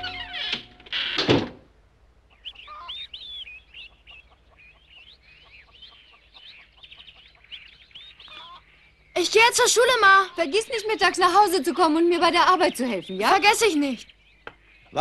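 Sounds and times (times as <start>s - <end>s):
small birds chirping: 2.2s - 15.0s
chickens clucking: 2.3s - 7.6s.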